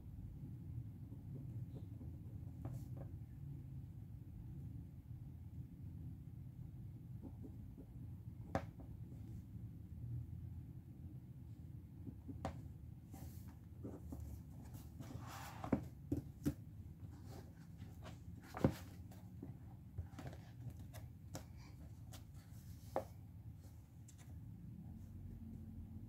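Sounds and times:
pages rustling and turning: 13.2s - 19.4s.

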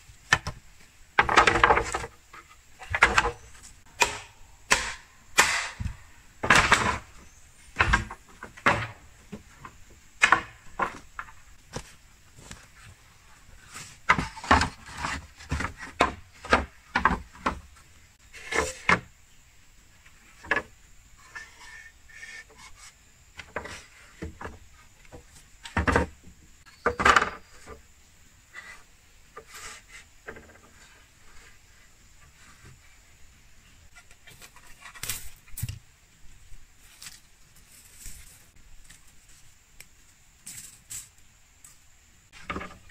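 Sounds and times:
bamboo scraping: 0.2s - 19.1s, 20.0s - 26.0s, 28.4s - 35.8s, 36.8s - 39.5s
bamboo poles knocking: 1.2s - 7.2s, 7.8s - 11.9s.

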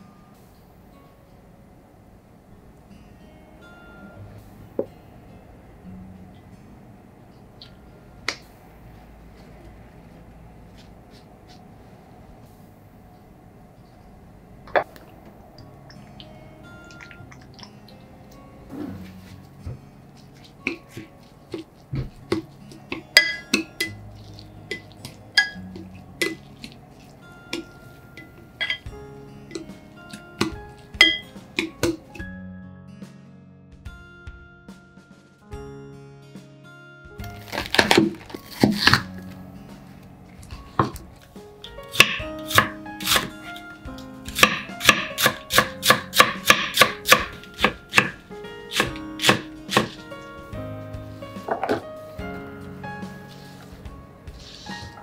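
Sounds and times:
soft squishing of cabbage: 23.8s - 28.2s, 37.2s - 41.4s
knife cutting cabbage on board: 37.3s - 39.2s, 41.9s - 43.6s, 44.3s - 50.1s.

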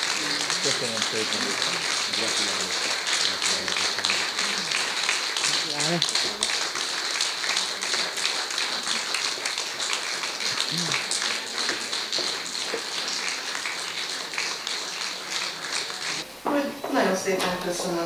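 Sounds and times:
audience applauding: 0.0s - 16.2s
person speaking: 0.2s - 4.8s.

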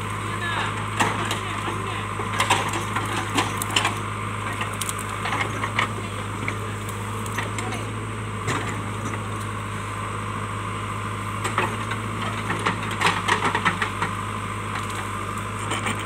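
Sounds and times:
diesel engine running: 0.0s - 16.0s
branches cracking and snapping: 2.3s - 7.8s.

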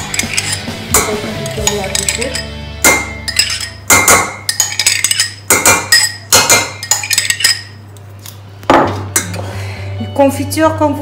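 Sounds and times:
metal spoon clinking in glass jar: 0.0s - 7.8s.

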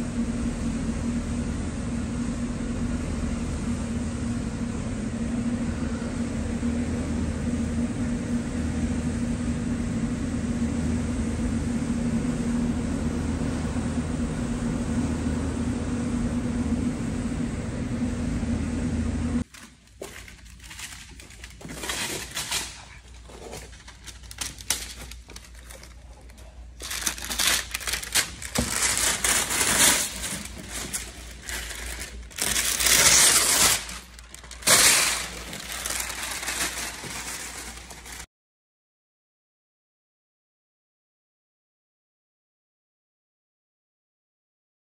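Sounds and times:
blower humming: 0.0s - 38.3s
masking paper crinkling and tearing: 19.4s - 38.3s.

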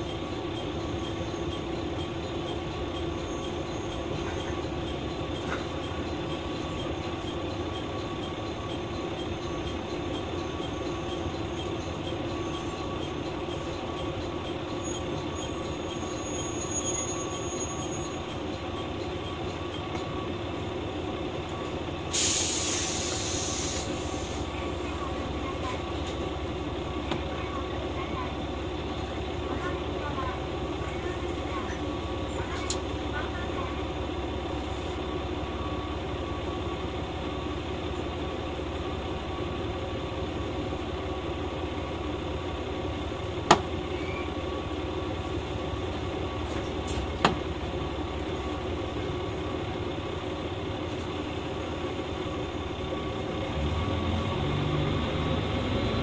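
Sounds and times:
diesel railcar engine and wheels drone: 0.0s - 56.0s
faint high squeal: 14.8s - 18.2s
air hiss burst: 22.1s - 24.4s.

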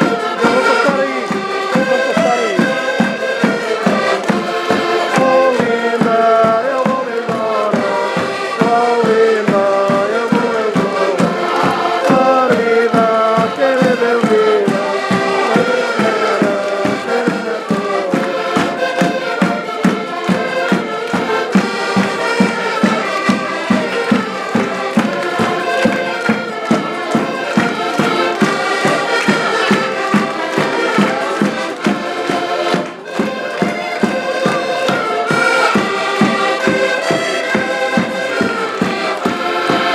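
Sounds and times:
accordions playing folk music: 0.0s - 39.9s
people singing together: 0.0s - 39.9s
bass drum beat: 5.2s - 18.8s.

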